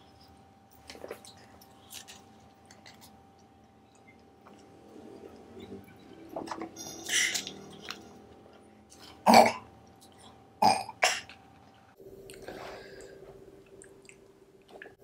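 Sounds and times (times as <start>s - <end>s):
person burping: 9.2s - 9.7s, 10.6s - 11.3s.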